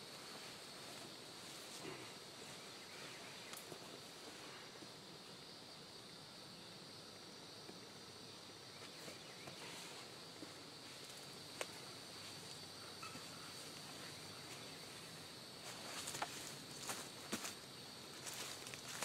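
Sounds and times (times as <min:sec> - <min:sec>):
tarp and brush rustling: 0:00.0 - 0:04.6, 0:13.2 - 0:19.0
insects droning: 0:00.0 - 0:19.0.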